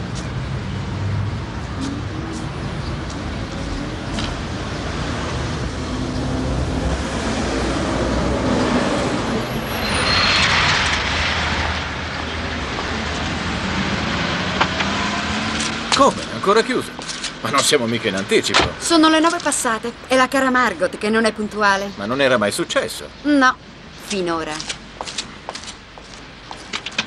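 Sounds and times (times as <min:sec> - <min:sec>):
vehicle passing close: 0:00.0 - 0:18.5
car engines running: 0:00.0 - 0:20.2.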